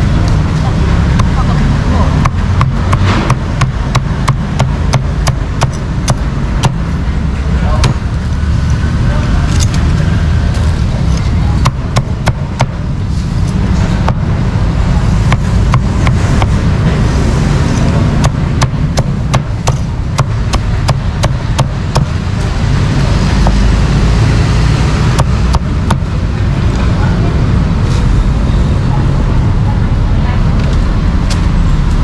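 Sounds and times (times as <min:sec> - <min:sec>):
low traffic rumble: 0:00.0 - 0:32.0
knife chopping: 0:02.2 - 0:06.8, 0:15.2 - 0:16.6, 0:18.2 - 0:22.2.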